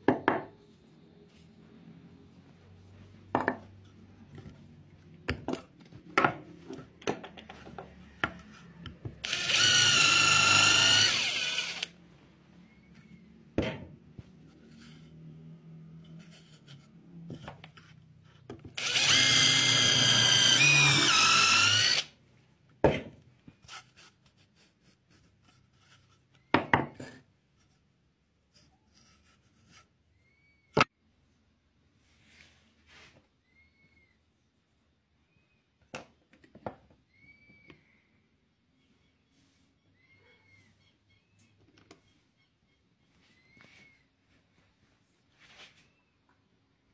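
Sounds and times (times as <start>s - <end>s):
power drill whining: 8.6s - 12.0s, 18.8s - 22.1s.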